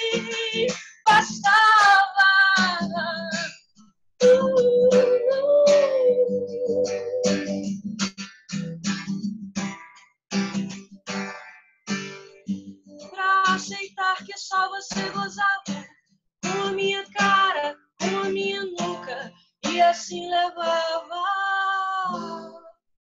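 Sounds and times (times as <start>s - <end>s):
woman singing: 0.0s - 3.5s, 4.2s - 7.2s, 13.1s - 22.8s
strummed acoustic guitar: 0.0s - 22.7s.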